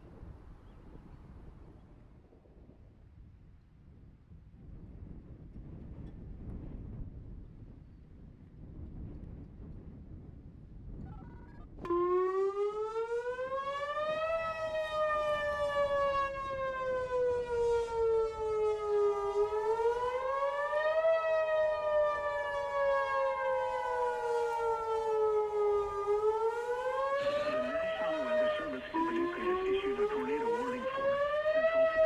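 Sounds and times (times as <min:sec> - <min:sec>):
wailing warning siren: 0:11.8 - 0:32.0.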